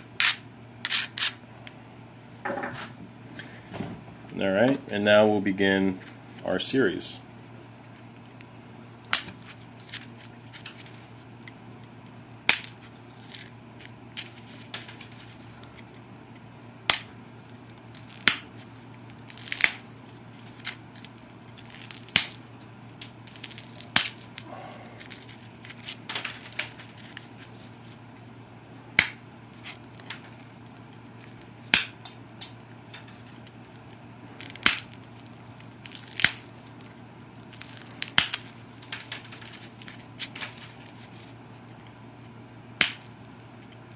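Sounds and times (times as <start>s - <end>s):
stone flakes clicking and snapping: 16.9s - 27.3s, 29.0s - 40.8s, 42.8s - 43.9s.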